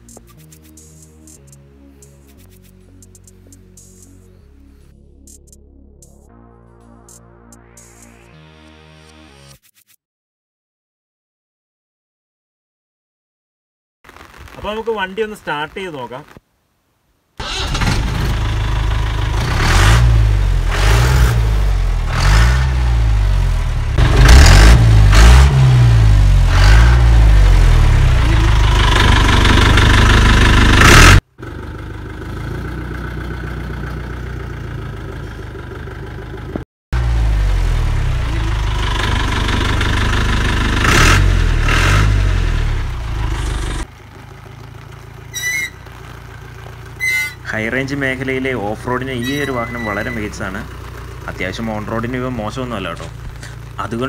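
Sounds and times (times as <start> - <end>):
diesel engine revving: 17.4 - 54.0.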